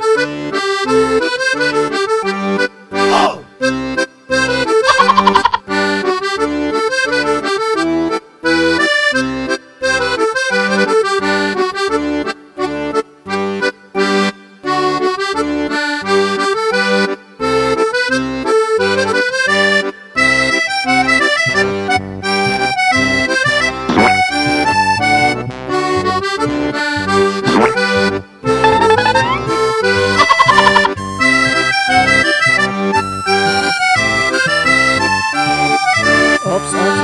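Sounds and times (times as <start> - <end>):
instrumental music with bass beat: 20.2 - 37.0.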